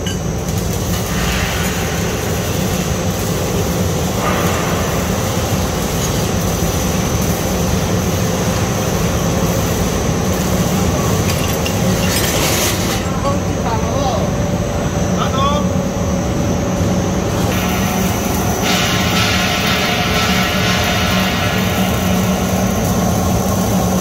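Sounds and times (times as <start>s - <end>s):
rushing machine noise: 15.8s - 24.0s.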